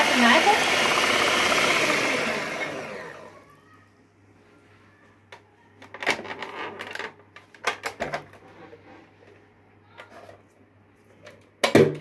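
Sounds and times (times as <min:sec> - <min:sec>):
hand mixer motor winding down: 0:00.0 - 0:03.5.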